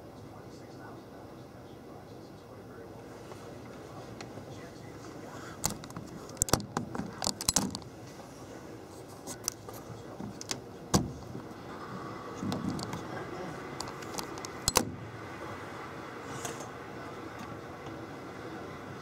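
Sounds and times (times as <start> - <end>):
sharp clicks and light rattles: 5.6 - 7.9, 13.8 - 14.9.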